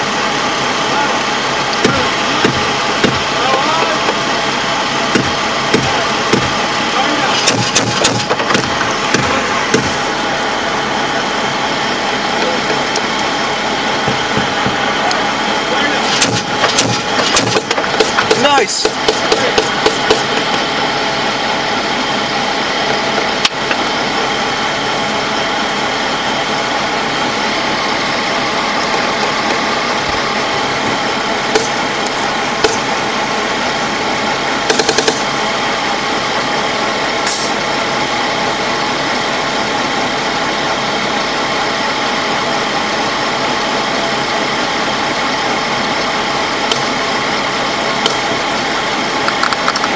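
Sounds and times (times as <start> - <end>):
diesel engine droning: 0.0 - 49.9
sharp cracks: 7.3 - 10.0, 16.1 - 20.5, 34.7 - 35.3.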